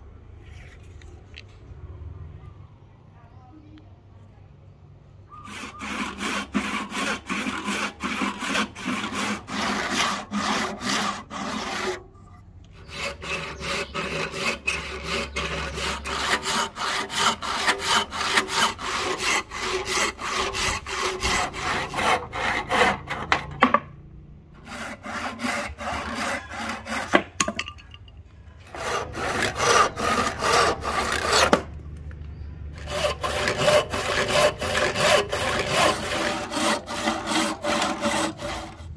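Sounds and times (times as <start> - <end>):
handsaw cutting wood: 5.4 - 12.1, 12.7 - 23.4, 24.6 - 27.4, 28.7 - 31.7, 32.8 - 38.9.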